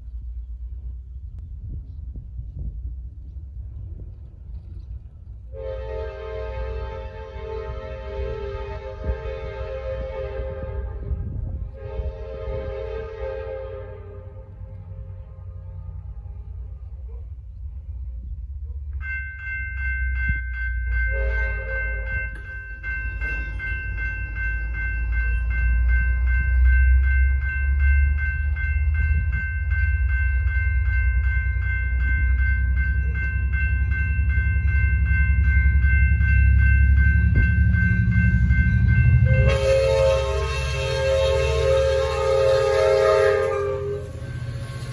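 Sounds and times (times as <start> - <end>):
low rumble: 0.0 - 19.0, 22.0 - 44.9
locomotive horn: 5.5 - 16.4, 21.1 - 22.1, 39.2 - 44.2
railroad crossing bells ringing: 18.9 - 44.9.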